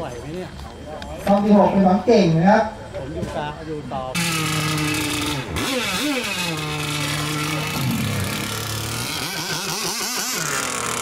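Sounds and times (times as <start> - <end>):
small boat engines revving: 4.2 - 11.0.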